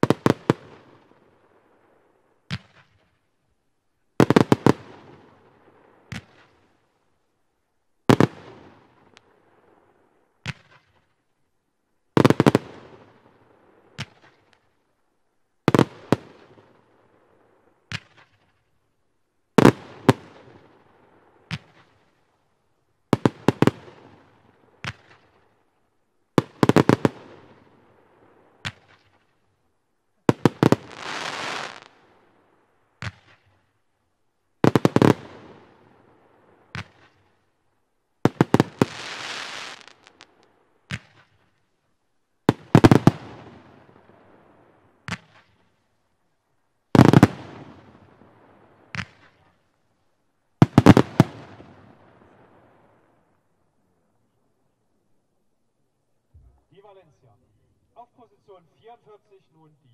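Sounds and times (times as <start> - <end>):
firework bangs: 30.3 - 32.0, 38.3 - 41.6, 42.4 - 45.7, 47.0 - 49.6, 50.6 - 53.2
firework hiss: 30.8 - 31.9, 38.6 - 40.4.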